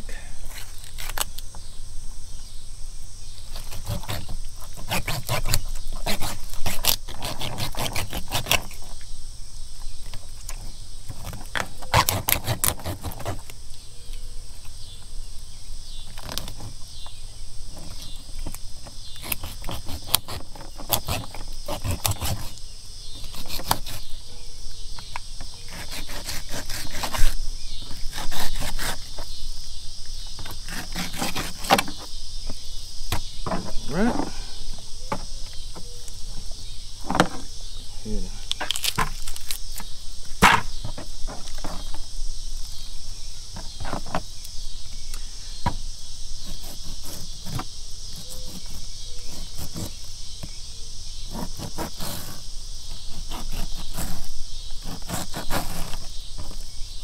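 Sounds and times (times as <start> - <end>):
insects droning: 0.0 - 57.0
knife scraping fish: 3.5 - 8.8, 19.2 - 22.6, 23.2 - 24.1, 25.7 - 29.2, 30.6 - 32.0.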